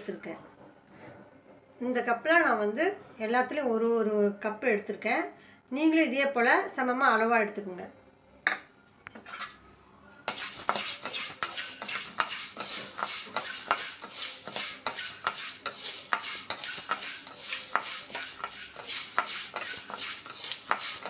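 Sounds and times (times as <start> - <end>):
grains scraping in steel pan: 10.3 - 21.0.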